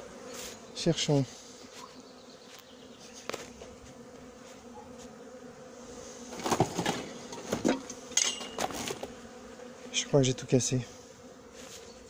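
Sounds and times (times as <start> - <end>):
bees buzzing: 0.0 - 12.0
wooden hive frames clattering: 6.2 - 9.3.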